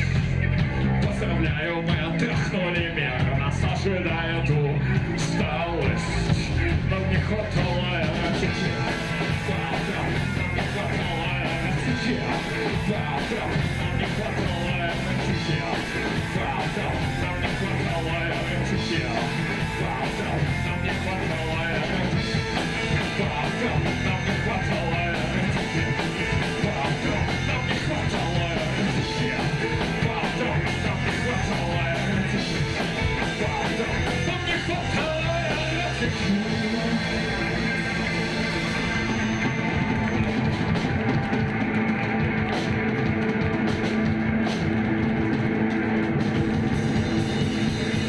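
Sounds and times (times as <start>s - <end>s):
drum kit: 0.0s - 48.0s
electric bass: 0.0s - 48.0s
electric guitar: 0.0s - 48.0s.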